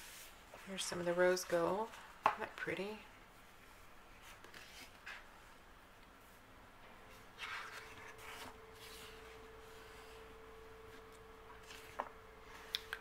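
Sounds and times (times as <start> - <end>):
faint steady hum: 0.0 - 13.0
paper page rustling: 4.2 - 5.3, 7.1 - 12.7.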